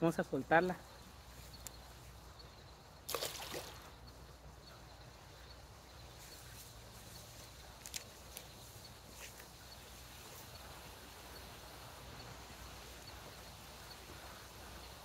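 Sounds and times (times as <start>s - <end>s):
fish splashing into water: 3.1s - 4.0s.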